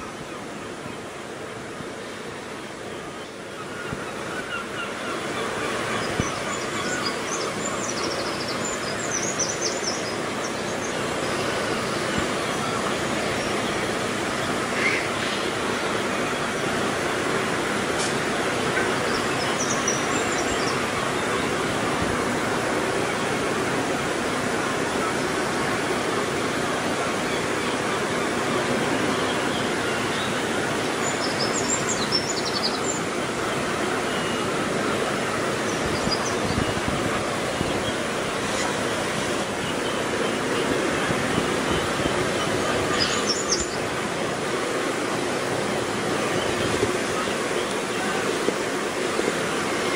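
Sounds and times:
steady rushing outdoor noise: 0.0 - 49.9.

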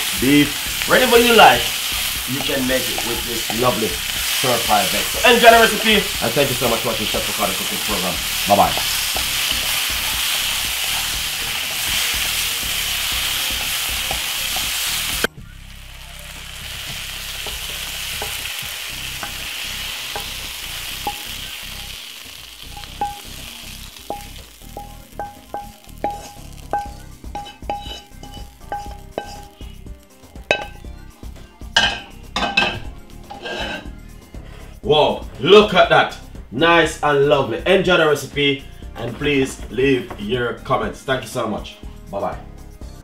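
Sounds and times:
vegetables sizzling in frying pan: 0.0 - 30.9, 31.7 - 33.9
wooden spoon scraping pan: 26.0 - 29.6, 31.8 - 33.9.

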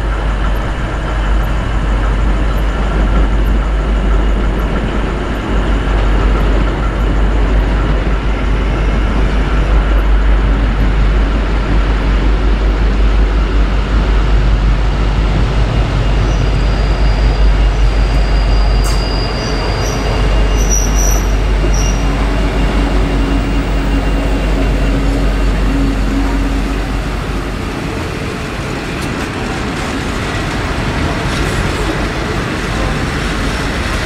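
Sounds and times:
diesel locomotive engine rumble: 0.0 - 34.0
high wheel or brake squeals: 16.2 - 26.6.

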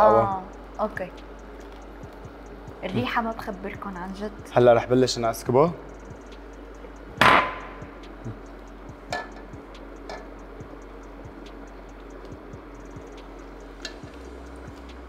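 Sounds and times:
faint regular ticking: 0.3 - 15.0.

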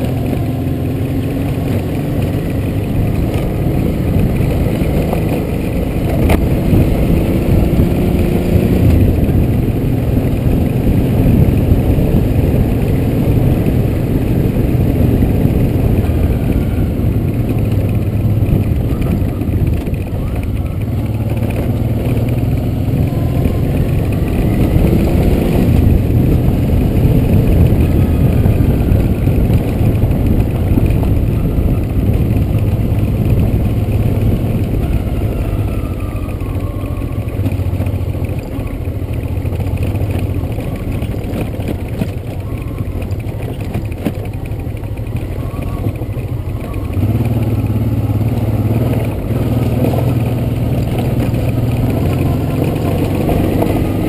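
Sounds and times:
motorcycle engine rumbling: 0.0 - 54.0
rattle and clatter from rough ground: 0.0 - 54.0.

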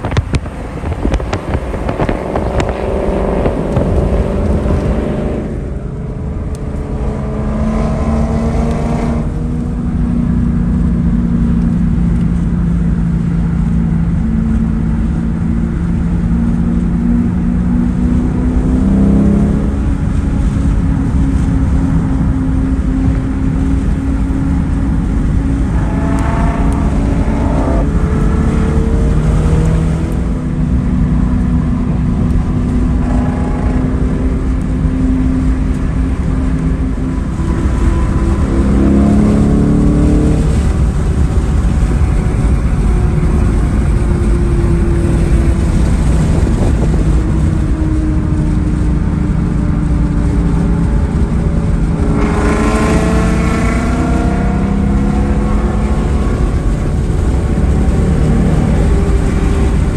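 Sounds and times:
car engine revving: 0.0 - 59.9
road noise inside car: 0.0 - 59.9.

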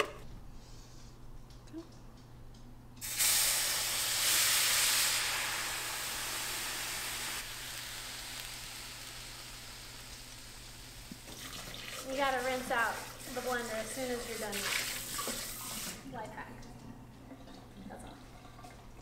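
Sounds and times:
salsa sizzling in hot skillet: 3.0 - 16.0.

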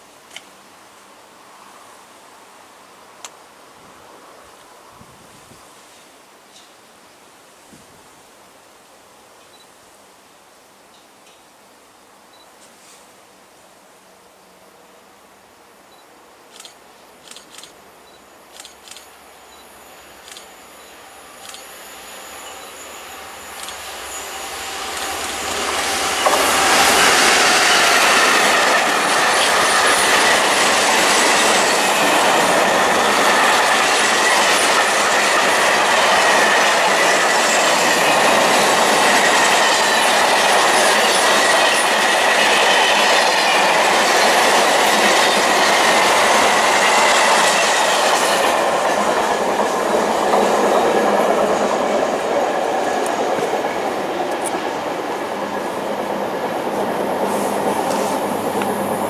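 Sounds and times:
thin high whine: 18.0 - 42.1
freight train wheels on rails: 18.5 - 59.0.

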